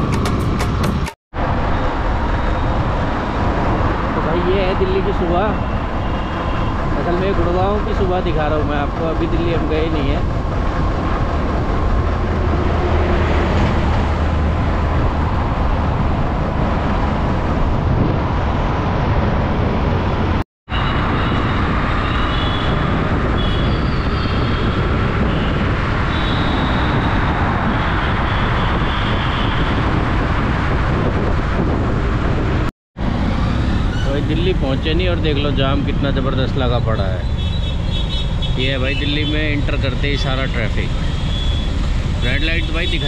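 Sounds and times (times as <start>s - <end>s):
road and wind noise: 0.0s - 43.0s.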